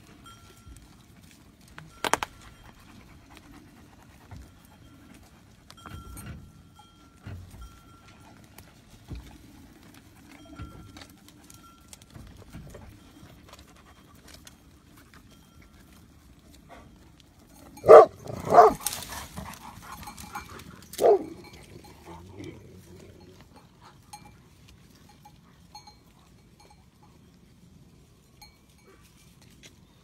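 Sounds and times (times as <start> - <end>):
large dog barking: 17.8 - 19.8, 20.9 - 21.6.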